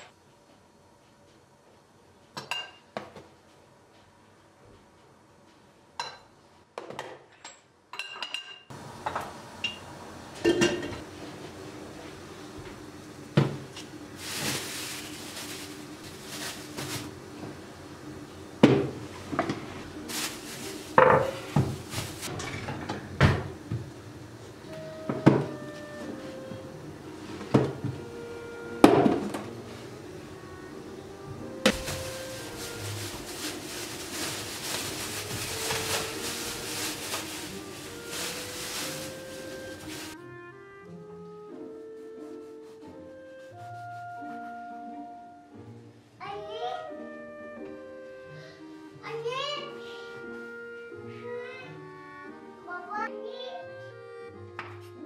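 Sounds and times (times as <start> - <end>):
plastic bag rustling: 13.9 - 17.4, 19.9 - 22.3, 31.3 - 40.2.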